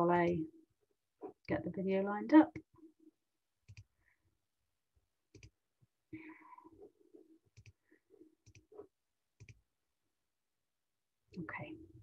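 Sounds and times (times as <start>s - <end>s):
computer mouse clicks: 3.7s - 3.9s, 7.5s - 7.8s, 9.4s - 9.6s.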